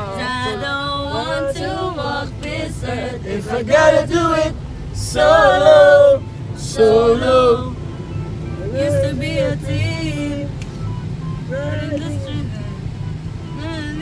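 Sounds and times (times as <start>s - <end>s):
people singing together: 0.0s - 7.8s
car cabin rumble: 0.0s - 14.0s.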